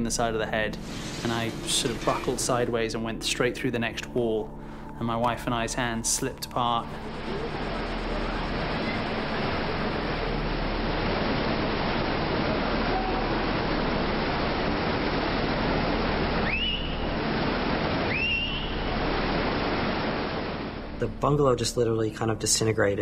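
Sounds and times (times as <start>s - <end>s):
floodwater rushing: 0.2s - 4.8s, 6.6s - 21.7s.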